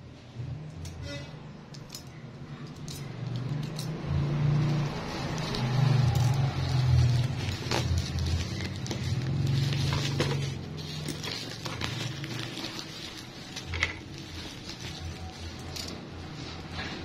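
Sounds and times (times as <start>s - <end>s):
bubble wrap crinkling: 4.6s - 17.0s.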